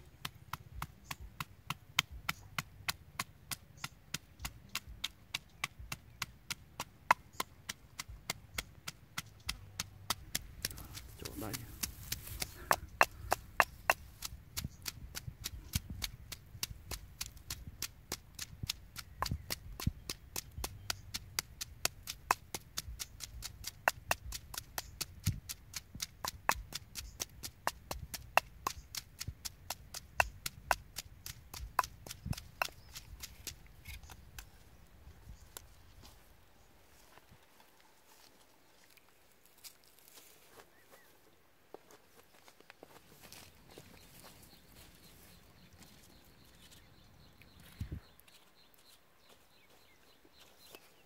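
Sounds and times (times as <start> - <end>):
pestle pounding in stone mortar: 0.1 - 34.5.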